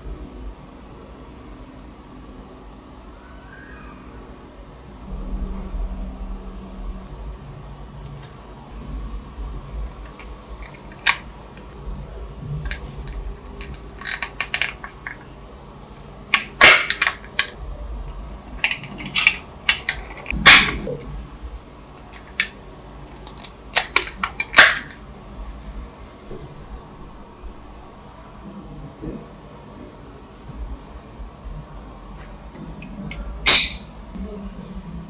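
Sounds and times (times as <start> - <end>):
plastic parts clicking into place: 12.6 - 15.3, 16.3 - 17.6, 18.6 - 20.8, 23.2 - 25.0.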